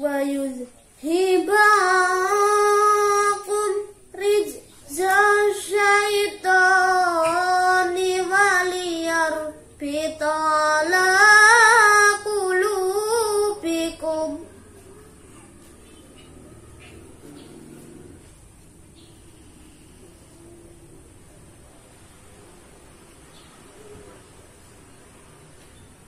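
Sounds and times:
boy reciting in melodic chant: 0.0s - 14.8s.

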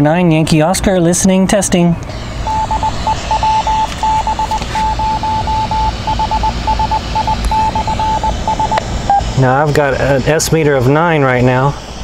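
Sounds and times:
morse code tone: 2.1s - 9.6s
radio static hiss: 2.1s - 12.0s.

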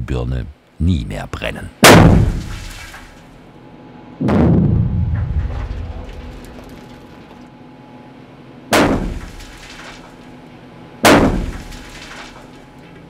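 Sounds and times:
blasting charges booming: 1.8s - 3.0s, 4.2s - 7.2s, 11.0s - 12.2s.

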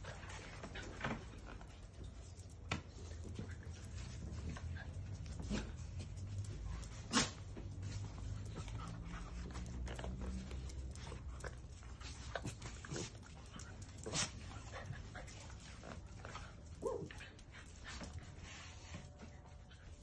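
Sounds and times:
dogs scuffling: 0.0s - 20.0s
small dogs yipping and growling: 12.1s - 18.2s.

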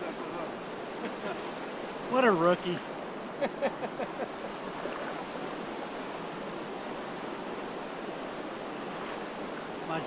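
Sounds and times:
river current rushing: 0.0s - 10.0s
people laughing: 3.4s - 4.6s.

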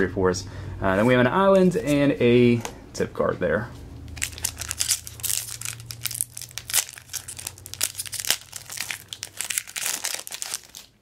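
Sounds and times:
foil wrapper tearing and crinkling: 4.2s - 11.0s.

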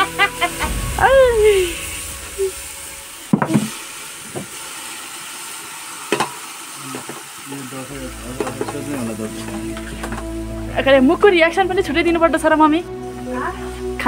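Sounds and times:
steady hiss: 0.0s - 10.7s.

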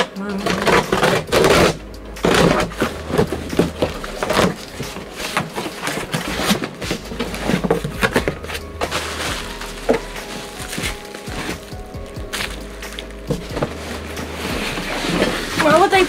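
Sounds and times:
cardboard flaps rustling: 0.3s - 16.0s
box cutter slicing tape: 0.4s - 16.0s.

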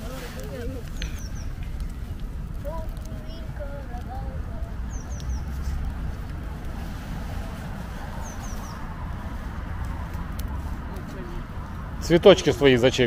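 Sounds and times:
low outdoor rumble: 0.0s - 13.0s
small bird chirping: 0.6s - 2.0s, 4.2s - 5.8s, 8.2s - 8.9s.

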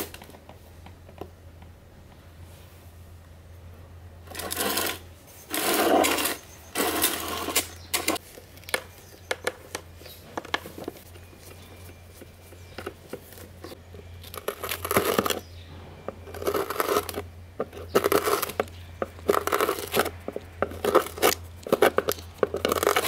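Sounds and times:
low steady hum: 0.0s - 23.0s
screwdriver scraping rasps: 4.3s - 8.2s, 16.3s - 23.0s.

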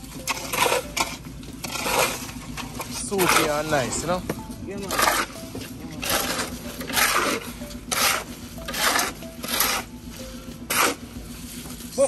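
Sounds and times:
shovel scraping wet concrete: 0.0s - 12.0s.

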